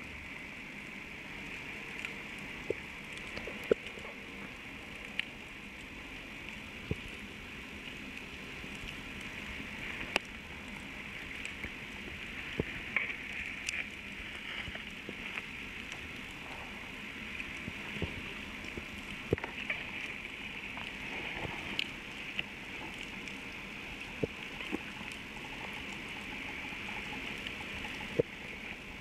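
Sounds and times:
underwater crackling hiss: 0:00.0 - 0:29.0
sharp underwater clicks: 0:01.9 - 0:04.0.

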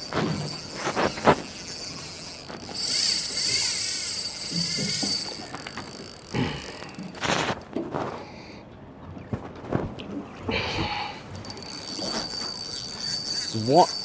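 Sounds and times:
fishing reel drag buzzing: 0:00.0 - 0:07.4, 0:11.4 - 0:14.0
fishing reel clicks: 0:00.5 - 0:07.2, 0:11.4 - 0:14.0.

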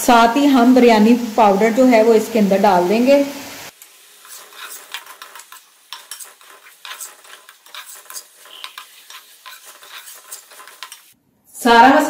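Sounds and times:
faint sizzle: 0:00.0 - 0:12.0
metal spoon scraping metal pan: 0:04.1 - 0:11.2.

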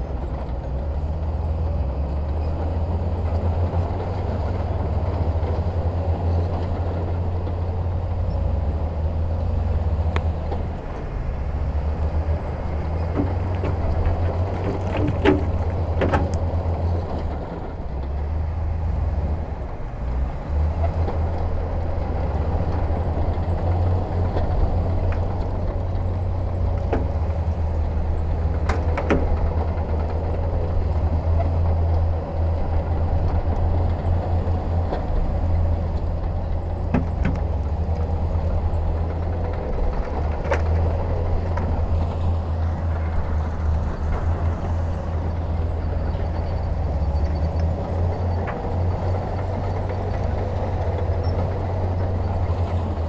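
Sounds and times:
diesel machinery engine drone: 0:00.0 - 0:53.0.

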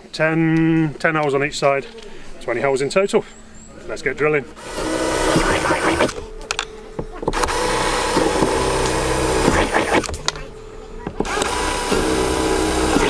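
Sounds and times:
cordless drill boring holes: 0:04.6 - 0:06.2, 0:07.3 - 0:10.1, 0:11.2 - 0:13.0.

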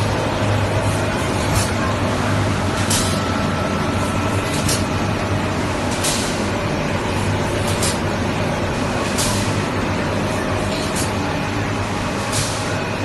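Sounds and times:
machinery humming: 0:00.0 - 0:13.0.

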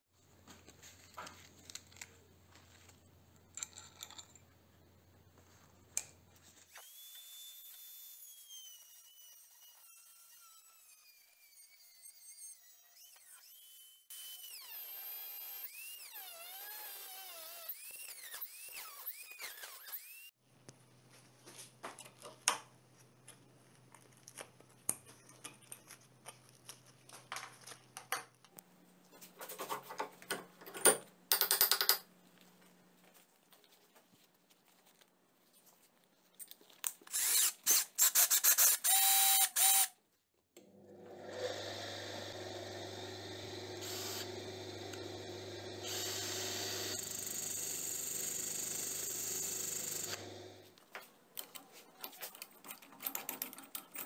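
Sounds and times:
screwdriver clicking and scraping metal: 0:36.4 - 0:39.9, 0:51.4 - 0:54.0
grinder motor humming: 0:40.6 - 0:50.7.

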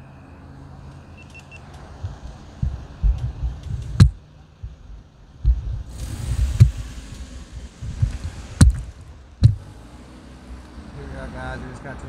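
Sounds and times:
sharp knocks: 0:02.0 - 0:06.8, 0:07.8 - 0:09.6
steady hiss: 0:05.5 - 0:09.4.

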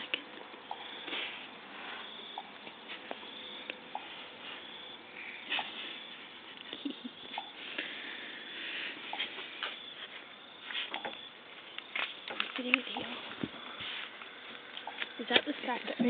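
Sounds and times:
steady hiss: 0:00.0 - 0:15.9
breathy noise: 0:03.6 - 0:09.8.

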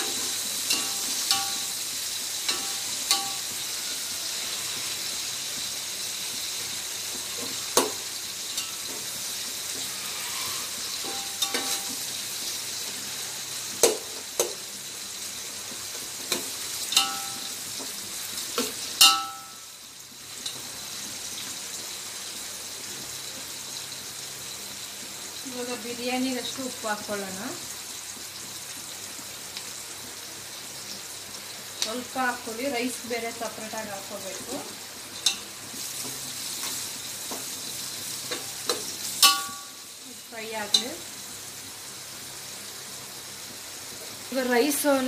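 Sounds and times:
onions sizzling in hot oil: 0:00.0 - 0:45.0
steel ladle knocking on pot: 0:00.7 - 0:01.7, 0:17.0 - 0:17.5, 0:19.0 - 0:19.6, 0:39.2 - 0:39.8.

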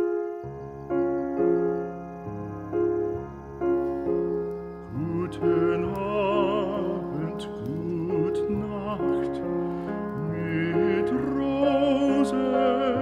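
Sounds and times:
slow piano chords: 0:00.0 - 0:13.0
operatic singing voice: 0:04.9 - 0:13.0.

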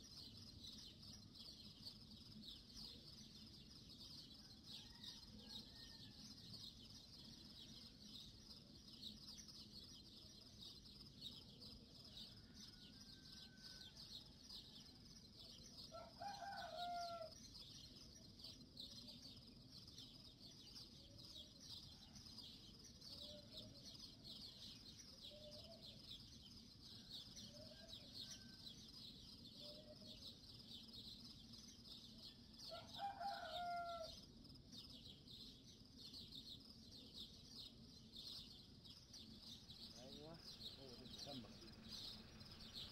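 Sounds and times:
rooster crowing: 0:15.9 - 0:17.3, 0:32.7 - 0:34.1.

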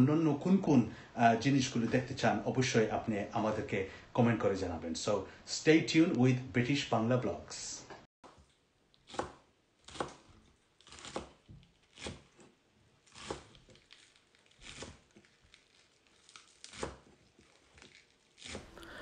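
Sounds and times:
knife chopping on wooden board: 0:08.2 - 0:12.4, 0:13.1 - 0:13.6, 0:14.6 - 0:15.0, 0:16.7 - 0:17.1, 0:18.4 - 0:18.9.

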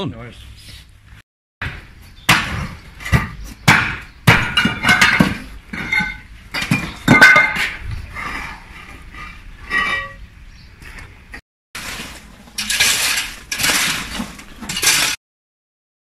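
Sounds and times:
tool knocking paving slabs: 0:01.6 - 0:05.9.

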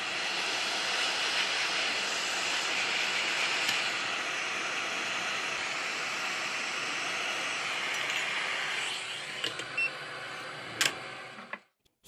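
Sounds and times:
hot air station hissing: 0:00.0 - 0:10.6.

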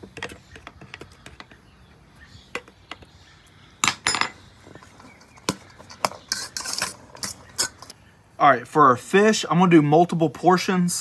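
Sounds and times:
cutlery clinking in metal bowl: 0:05.2 - 0:07.9.

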